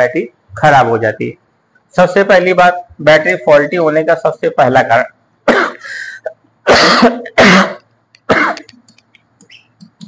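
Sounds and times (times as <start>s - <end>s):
man coughing: 5.5s - 5.9s, 6.6s - 8.7s
marker writing on board: 8.6s - 10.0s.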